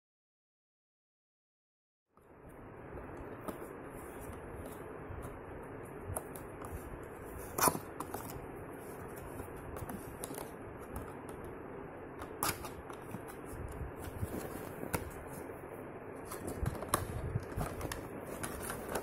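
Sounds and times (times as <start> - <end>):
sharp cardboard crackle: 6.1 - 11.3, 16.2 - 19.0.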